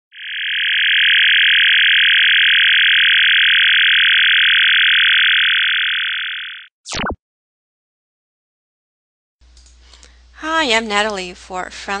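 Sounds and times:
electronic buzzing drone: 0:00.1 - 0:06.7.

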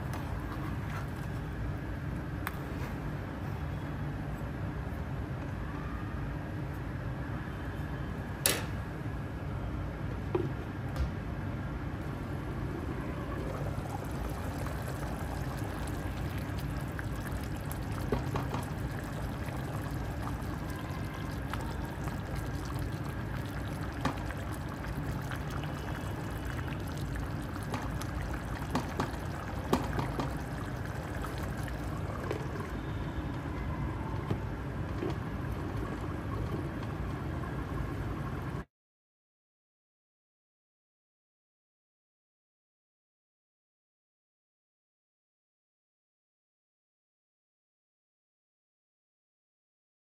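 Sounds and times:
broth boiling in pot: 0:12.0 - 0:38.7.

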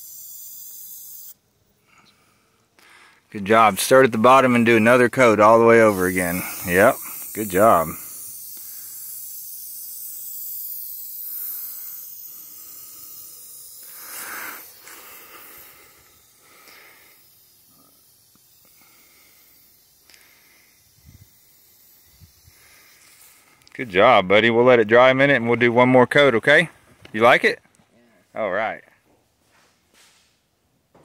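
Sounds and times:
spray-paint can hissing: 0:00.0 - 0:01.4, 0:03.8 - 0:23.9.

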